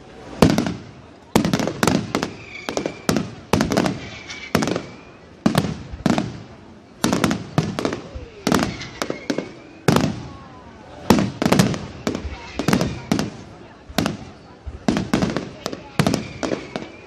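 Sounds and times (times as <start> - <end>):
thin firework whistling: 1.4 - 6.2, 7.1 - 13.5, 14.1 - 17.0
firework shells bursting: 7.0 - 10.2.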